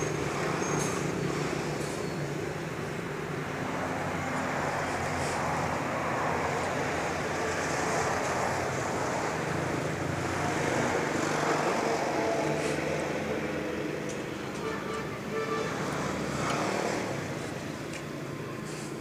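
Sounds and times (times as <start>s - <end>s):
road traffic hum: 0.0s - 19.0s.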